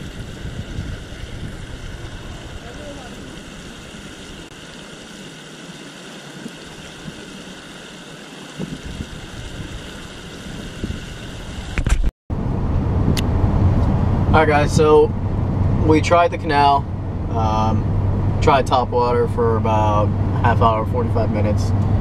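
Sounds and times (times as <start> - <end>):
vehicle interior hum: 0.0 - 5.2, 8.6 - 22.0
water pouring over spillway: 0.0 - 11.8.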